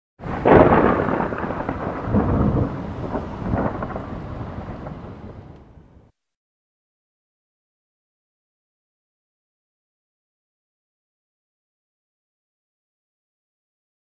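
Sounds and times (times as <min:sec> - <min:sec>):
thunder crack and rumble: 0:00.2 - 0:06.1.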